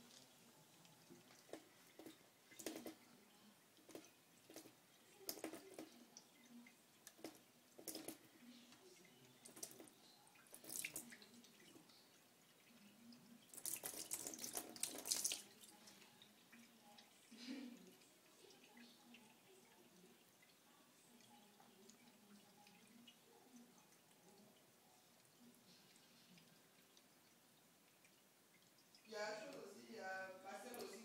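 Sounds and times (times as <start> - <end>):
tap water trickling into sink: 0.0 - 29.8
small water splashes: 9.0 - 16.8.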